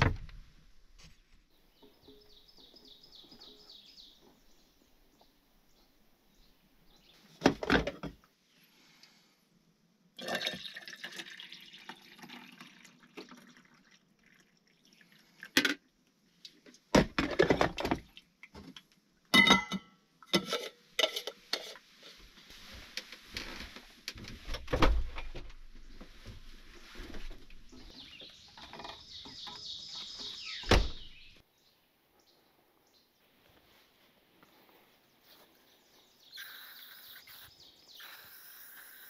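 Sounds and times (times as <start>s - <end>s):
dishes clinking: 19.4s - 21.8s.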